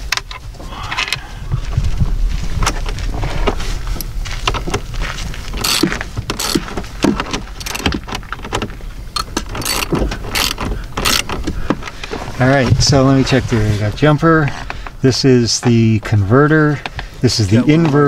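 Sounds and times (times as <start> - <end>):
low steady rumble: 0.0 - 18.0
metal clinks of wrench: 5.6 - 6.6, 9.2 - 11.3.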